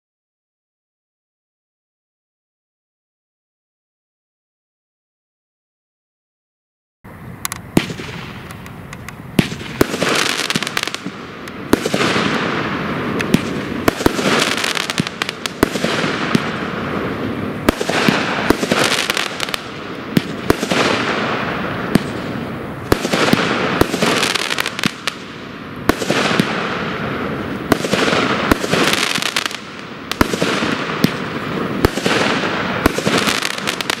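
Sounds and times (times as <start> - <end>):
fireworks hissing: 7.1 - 34.0
fireworks bangs: 7.4 - 34.0.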